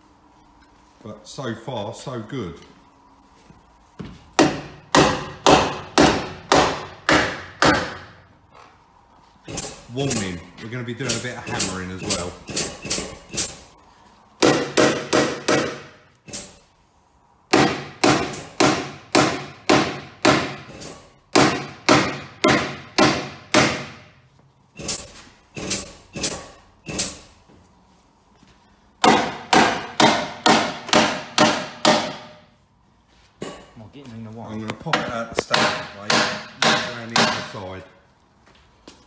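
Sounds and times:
hammer striking steel panel: 4.4 - 8.2, 14.4 - 16.6, 17.5 - 24.0, 29.0 - 32.5, 35.0 - 37.6.

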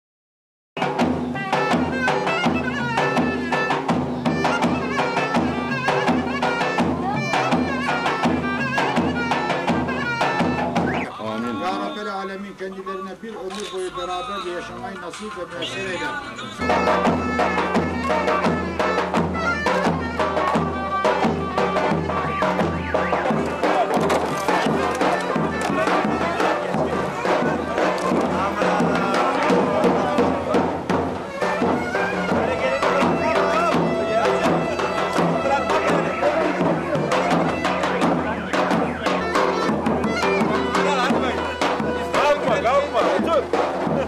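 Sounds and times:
pounding drum beat: 0.8 - 12.0, 16.6 - 44.0
clarinet melody: 1.4 - 12.0, 15.6 - 30.6, 31.2 - 43.0.

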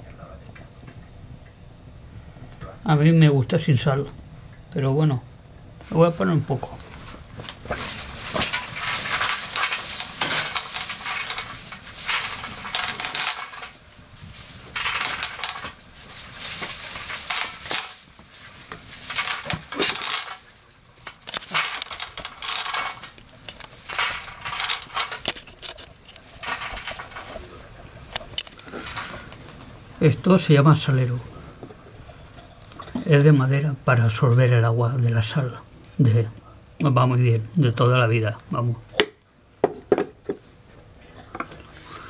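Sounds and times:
fire crackling and hissing: 6.7 - 30.1.

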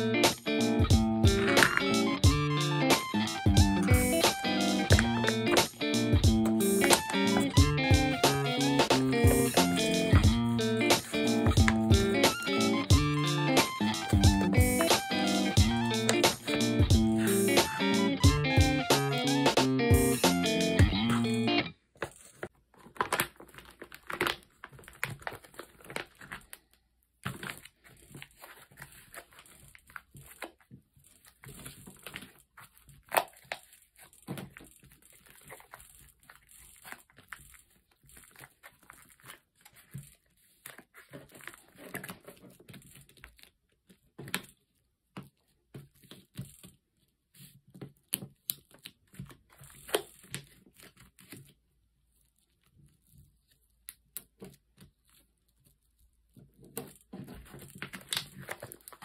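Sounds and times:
plastic bag crinkling: 21.8 - 44.8, 54.9 - 59.0.

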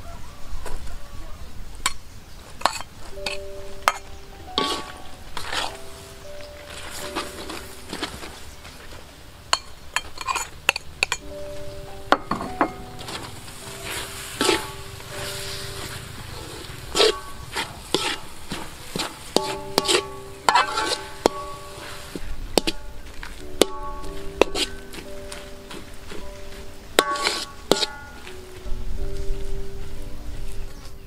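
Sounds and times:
metal spoon scraping metal pan: 2.6 - 6.0, 9.5 - 11.4, 13.0 - 23.0, 23.6 - 25.1, 27.0 - 28.3
soft background music: 2.6 - 31.0.

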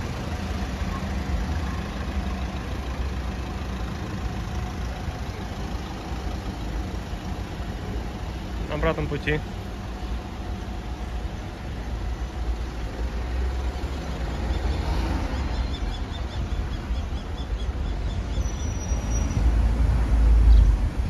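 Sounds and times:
cars passing on a street: 0.0 - 21.0.

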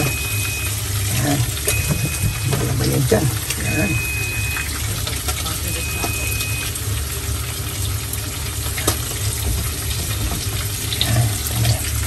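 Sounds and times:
thin high tone: 3.6 - 4.8.

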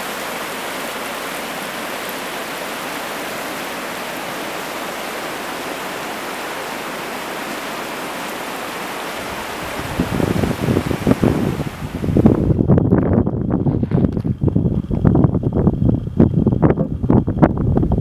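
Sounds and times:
stream rushing over stones: 0.0 - 12.6
wind buffeting microphone: 0.5 - 18.0.

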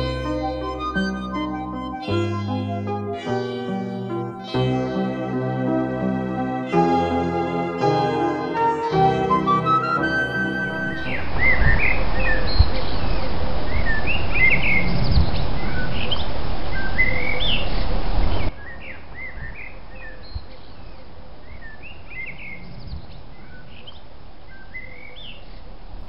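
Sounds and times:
loud low noise: 0.0 - 14.4.

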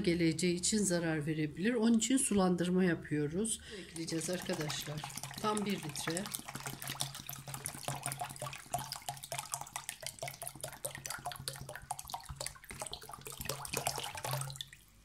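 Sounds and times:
liquid splashing: 3.7 - 15.0.

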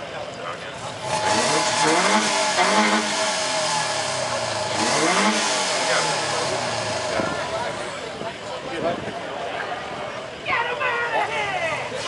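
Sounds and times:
car engine revving: 0.8 - 8.3.

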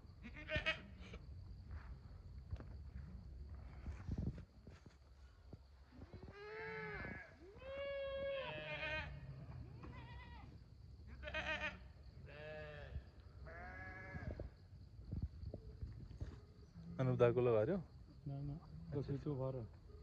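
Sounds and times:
goats and sheep bleating: 0.2 - 1.0, 6.2 - 14.4.

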